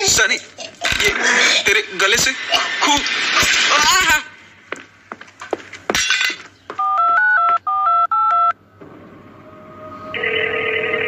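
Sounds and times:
touch-tone keypad beeps: 0:06.8 - 0:08.5
phone ringing tone: 0:06.8 - 0:08.6, 0:10.1 - 0:11.0.

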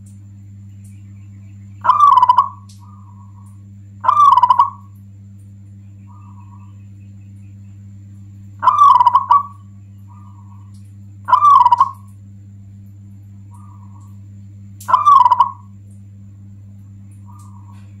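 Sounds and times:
steady low hum: 0:00.0 - 0:18.0
dove cooing: 0:01.8 - 0:05.0, 0:06.0 - 0:07.0, 0:08.6 - 0:12.1, 0:13.5 - 0:14.2, 0:14.8 - 0:15.8, 0:17.2 - 0:18.0.

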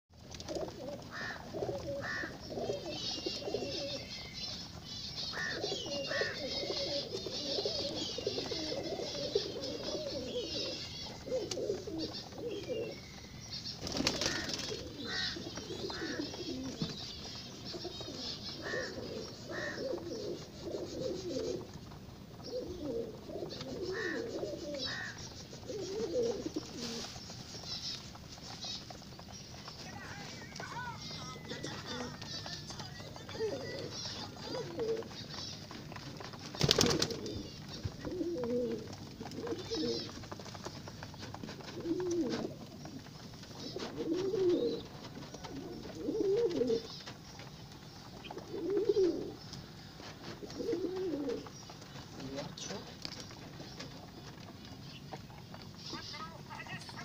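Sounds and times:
pigeons cooing: 0:00.1 - 0:57.0
wings flapping: 0:13.6 - 0:20.4, 0:24.8 - 0:54.5.

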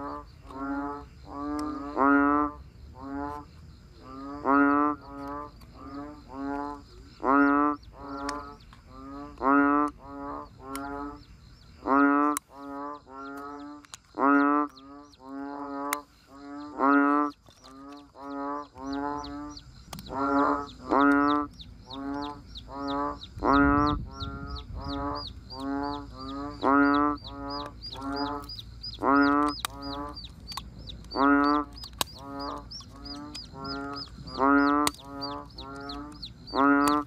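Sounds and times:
pitched animal calls: 0:11.8 - 0:37.0.

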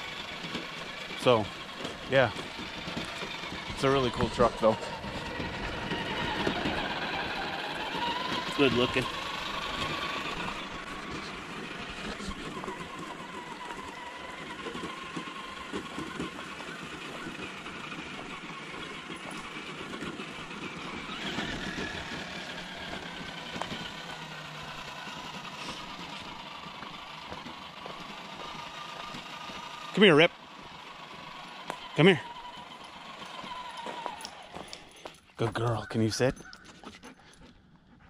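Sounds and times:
small crunches on trail: 0:00.0 - 0:37.6
electric motor and gears whining: 0:00.0 - 0:37.8.

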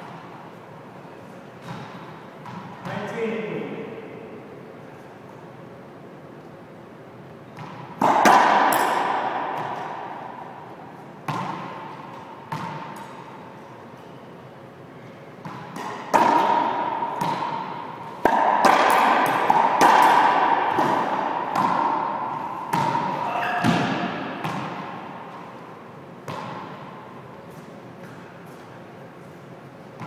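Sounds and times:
racquetball hits echoing: 0:01.6 - 0:04.3, 0:07.5 - 0:13.6, 0:15.4 - 0:28.6.

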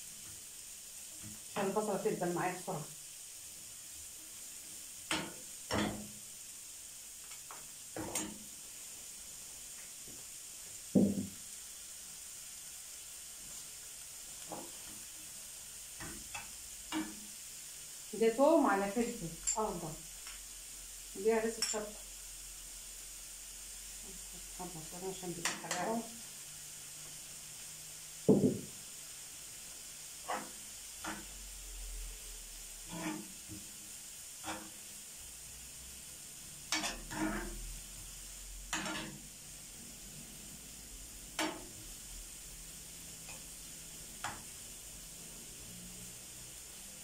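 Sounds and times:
onions sizzling in oil: 0:00.0 - 0:47.0
loud thump: 0:11.0 - 0:11.3, 0:28.3 - 0:28.7
spoon knocking against pan: 0:11.0 - 0:11.3, 0:28.3 - 0:28.7, 0:41.4 - 0:41.7
sharp knock: 0:28.3 - 0:28.7.

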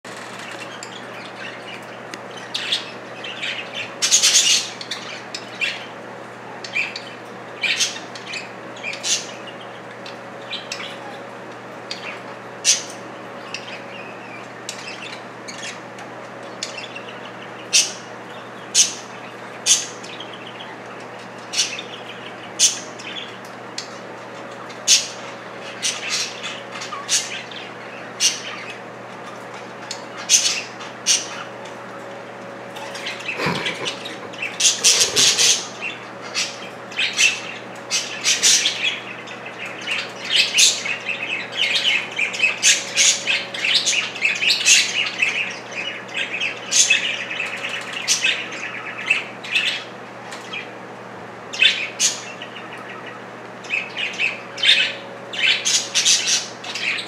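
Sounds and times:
budgerigars chirping: 0:00.1 - 0:11.3, 0:11.9 - 0:28.9, 0:32.8 - 0:50.8, 0:51.5 - 0:57.0
birds scuffling: 0:31.5 - 0:36.9
sharp bird squawks: 0:33.2 - 0:35.8.

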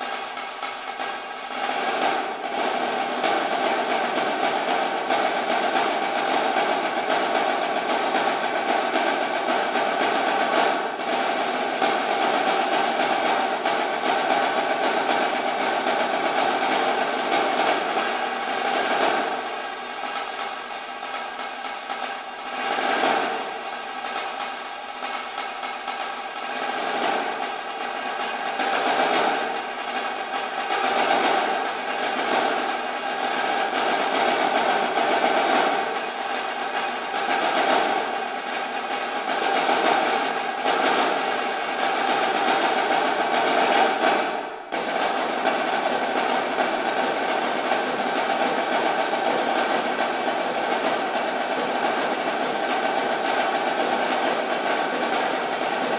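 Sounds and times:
snare drum rolls: 0:00.0 - 0:55.9.

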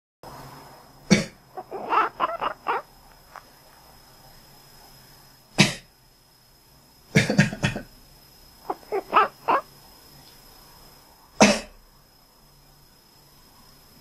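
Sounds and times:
cat sneezing: 0:05.6 - 0:05.9.

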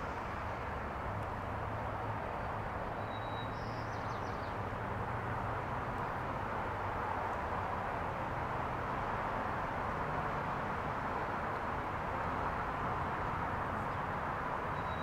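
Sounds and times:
bird chirping: 0:03.0 - 0:04.5, 0:14.8 - 0:15.0.

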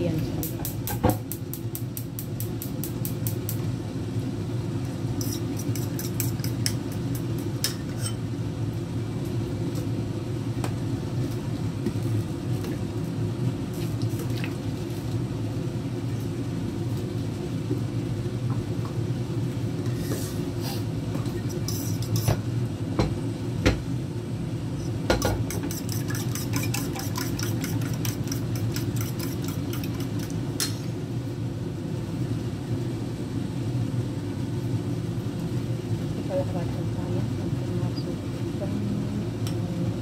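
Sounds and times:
oil crackling in frying pan: 0:00.4 - 0:19.8, 0:25.0 - 0:31.3.

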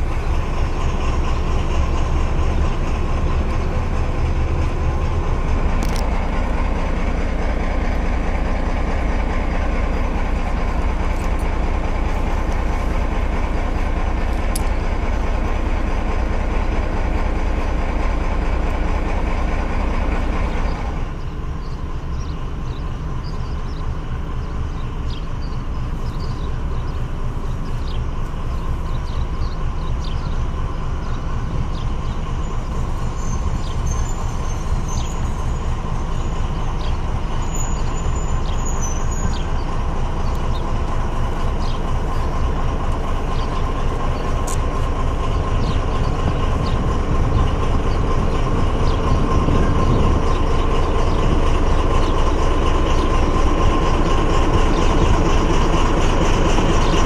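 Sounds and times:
diesel locomotive engine running: 0:00.0 - 0:57.0
train approaching: 0:00.0 - 0:57.0.

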